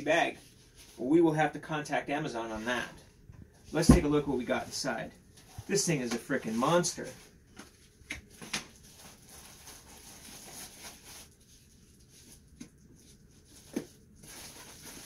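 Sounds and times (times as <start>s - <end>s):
packaging crinkling: 7.6s - 12.5s.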